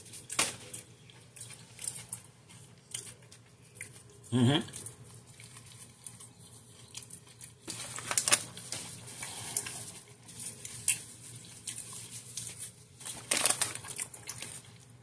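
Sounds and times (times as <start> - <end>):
person chewing: 0.0 - 7.7, 9.0 - 13.1
paper wrapper rustling: 5.1 - 14.9.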